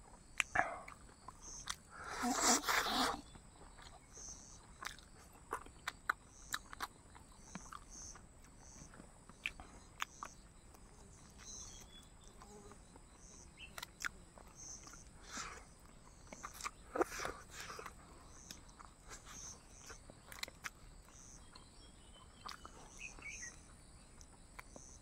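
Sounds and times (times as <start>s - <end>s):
insect chirping: 0.0s - 25.0s
mouth chewing food: 0.0s - 25.0s.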